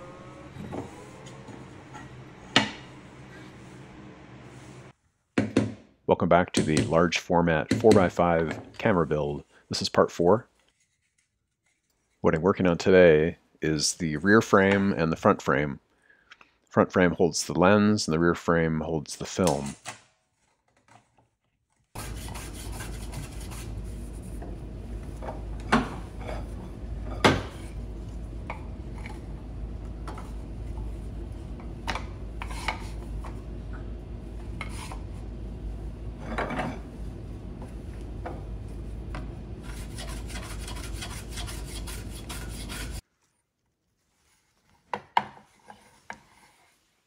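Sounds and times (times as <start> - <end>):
low hum: 0.0 - 4.9
hand plane scraping wood: 22.0 - 23.8, 39.6 - 43.0.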